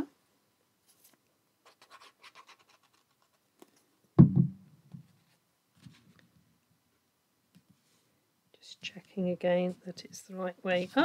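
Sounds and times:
paper card rustling and scraping: 0.9s - 3.8s
low thump on desk: 4.2s - 4.6s.

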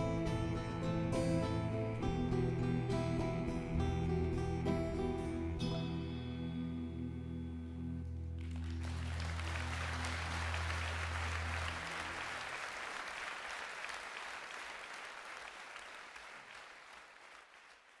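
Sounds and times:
audience applauding: 8.4s - 18.0s.

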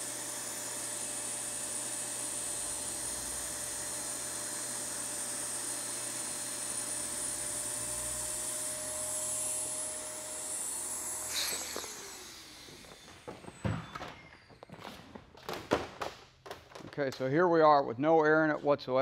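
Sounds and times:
electric air pump whining: 0.0s - 15.2s.

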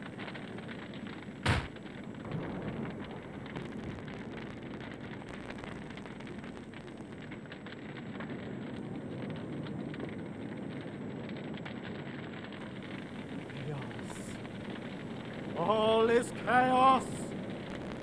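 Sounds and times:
steady crackling: 0.0s - 18.0s
loud bang: 1.4s - 1.7s.

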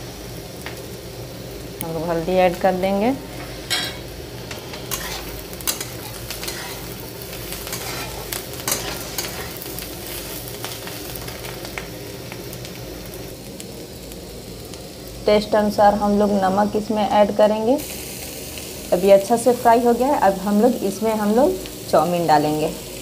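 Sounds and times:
vegetables sizzling in a wok: 0.0s - 23.0s
spatula scraping pan: 3.3s - 9.7s.

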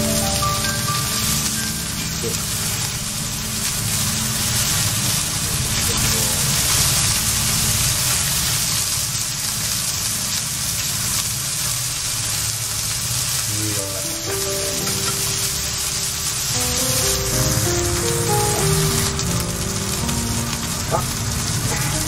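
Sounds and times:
background music with held notes: 0.0s - 5.8s, 13.5s - 22.0s
fish fillets sizzling in a frying pan: 0.0s - 22.0s.

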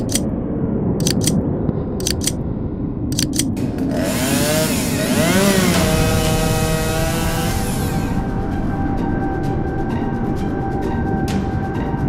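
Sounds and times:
sharp paired clicks: 0.0s - 0.3s, 1.0s - 1.4s, 2.0s - 2.4s, 3.1s - 3.6s
chainsaw revving: 3.8s - 8.0s.

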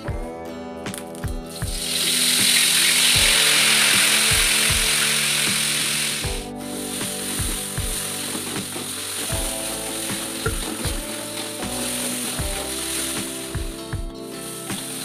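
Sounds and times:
background music with plucked guitar: 0.0s - 15.0s
paste sizzling in hot oil: 1.8s - 13.5s.

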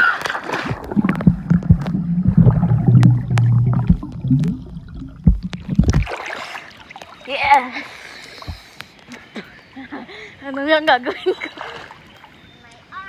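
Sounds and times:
sharp underwater clicks: 0.2s - 6.2s
water bubbling: 0.5s - 7.2s
low underwater hum: 0.6s - 7.2s.

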